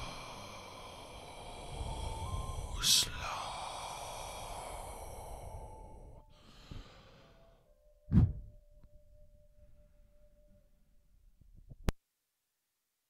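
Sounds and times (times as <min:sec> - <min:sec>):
faint ringing tones: 0:00.0 - 0:06.3.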